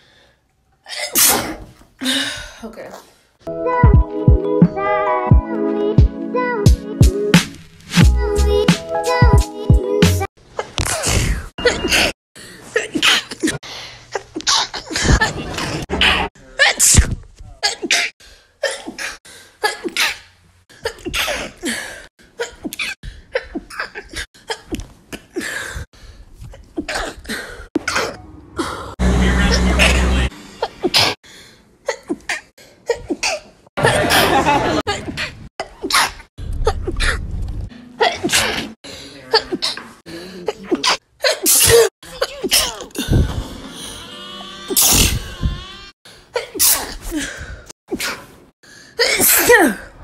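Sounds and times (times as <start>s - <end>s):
woman sneezing: 0.9s - 1.7s, 40.5s - 43.3s, 46.4s - 47.3s, 49.0s - 49.9s.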